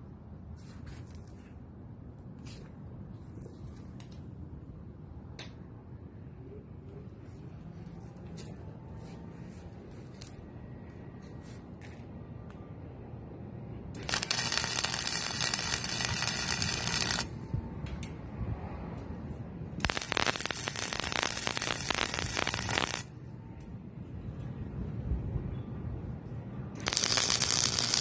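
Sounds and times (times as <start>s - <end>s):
arc welding crackling: 14.0s - 17.4s, 19.8s - 23.1s, 26.8s - 28.0s.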